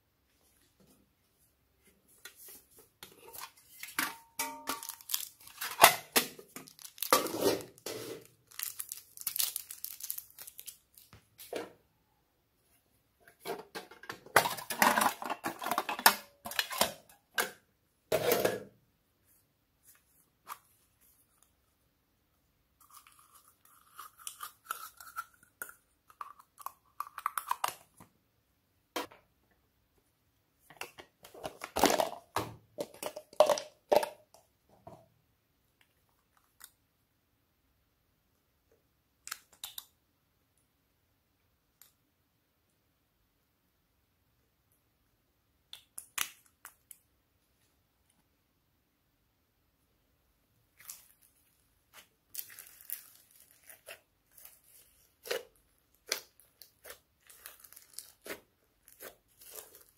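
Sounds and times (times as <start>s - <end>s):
packaging rustling and tearing: 4.7s - 11.1s, 52.3s - 59.9s.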